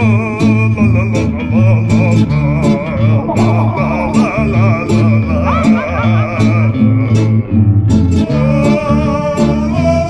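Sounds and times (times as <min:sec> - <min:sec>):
plucked string bass line: 0:00.0 - 0:10.0
wavering melody: 0:01.0 - 0:08.3.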